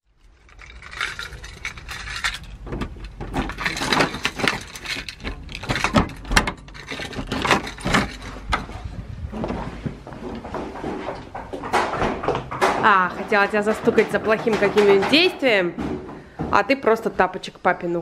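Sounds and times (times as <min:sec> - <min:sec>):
keys jangling: 0:00.2 - 0:08.8.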